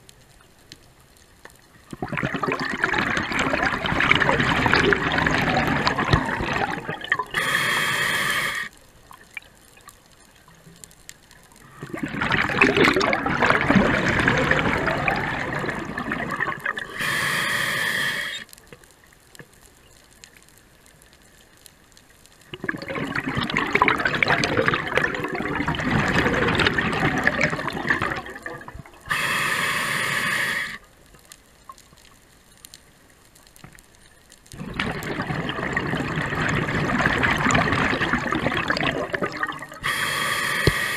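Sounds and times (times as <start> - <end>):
gurgle of exhaled bubbles: 1.8 - 7.8, 11.6 - 17.2, 22.5 - 29.2, 34.6 - 40.9
regulator inhalation hiss: 7.3 - 8.8, 16.8 - 18.5, 29.1 - 30.9, 39.8 - 40.9.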